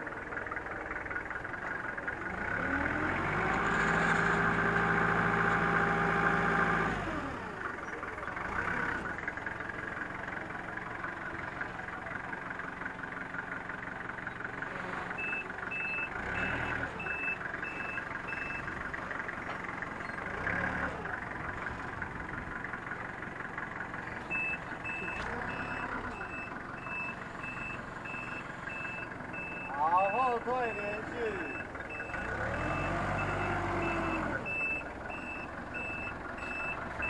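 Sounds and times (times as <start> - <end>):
forklift engine revving: 0.0 - 37.0
reversing alarm beeps: 15.2 - 18.7, 24.3 - 36.8.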